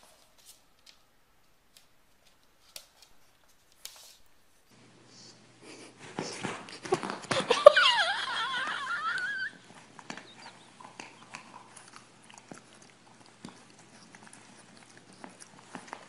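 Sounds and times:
puppy whining: 0:07.4 - 0:16.0.

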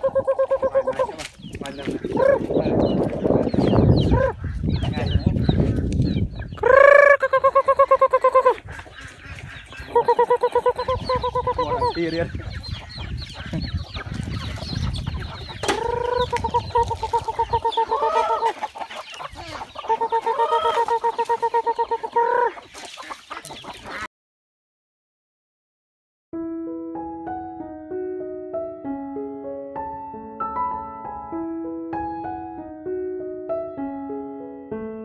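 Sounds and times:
chickens calling: 0:00.0 - 0:24.1
chickens clucking softly: 0:00.0 - 0:24.1.

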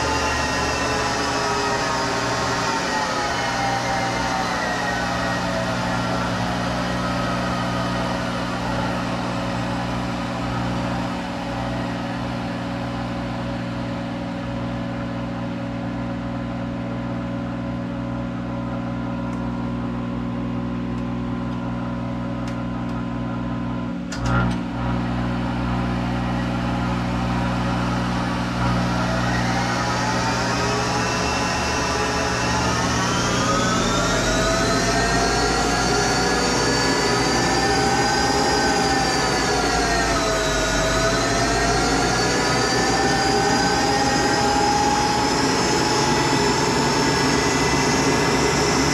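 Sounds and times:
lathe spindle running: 0:00.0 - 0:13.9, 0:24.8 - 0:48.9.

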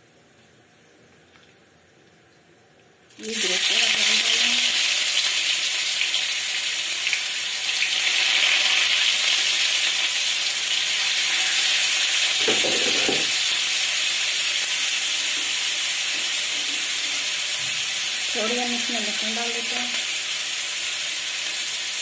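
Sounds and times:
hot oil sizzling: 0:03.1 - 0:22.0.

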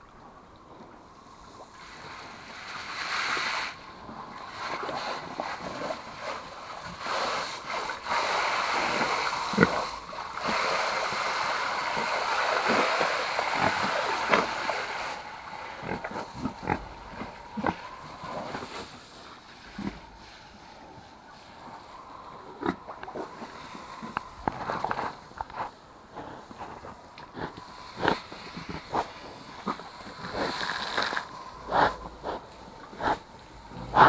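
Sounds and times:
pigs grunting: 0:12.0 - 0:18.9, 0:26.1 - 0:34.0.

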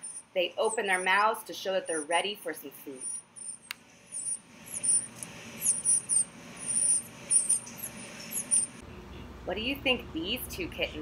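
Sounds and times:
nestlings chirping: 0:00.0 - 0:02.2, 0:03.0 - 0:08.8.

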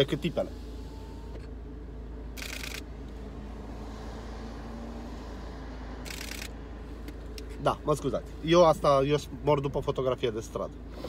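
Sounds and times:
car cabin hum: 0:00.0 - 0:03.5
camera shutter burst: 0:02.4 - 0:02.8, 0:06.1 - 0:06.5.

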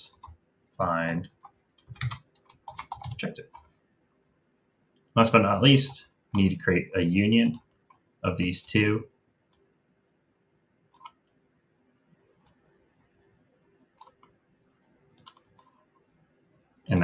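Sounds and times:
computer mouse clicks: 0:00.1 - 0:03.7, 0:10.9 - 0:11.4, 0:14.0 - 0:14.4, 0:15.2 - 0:15.8.

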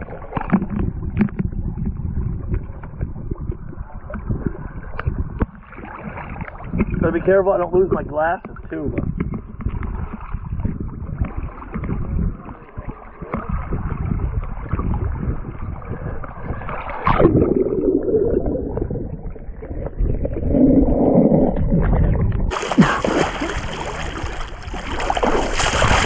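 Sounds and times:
muffled underwater river churning: 0:00.0 - 0:26.0
water splashing and rushing: 0:02.4 - 0:07.7, 0:09.6 - 0:26.0.

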